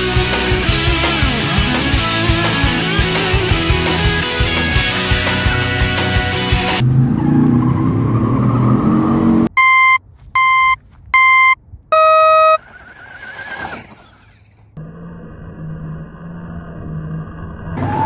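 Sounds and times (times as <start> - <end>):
electronic countdown beeps: 9.6 - 12.6
electric toy truck motors whining: 12.4 - 17.1
rumbling engine-like sound: 12.6 - 18.0.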